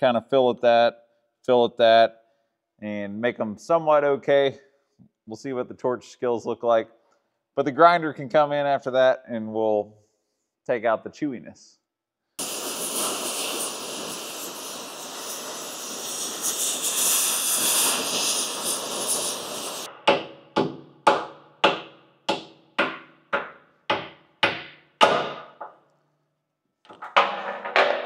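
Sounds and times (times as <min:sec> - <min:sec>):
cutting torch hissing: 0:12.4 - 0:19.9.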